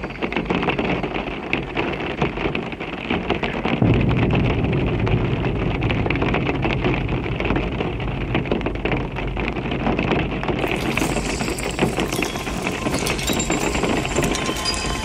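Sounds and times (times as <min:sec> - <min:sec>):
rain-like crackle: 0:00.0 - 0:15.0
steady low drone: 0:03.8 - 0:10.0.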